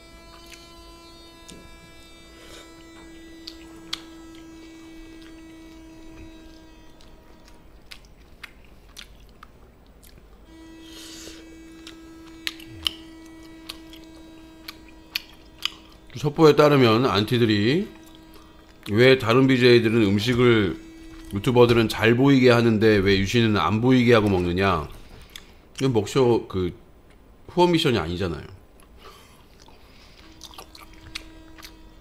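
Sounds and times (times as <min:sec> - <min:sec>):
steady electrical hum: 0:00.0 - 0:32.0
person chewing and biting food: 0:00.2 - 0:16.2, 0:17.9 - 0:19.0, 0:20.2 - 0:21.8, 0:24.2 - 0:25.6, 0:28.8 - 0:32.0.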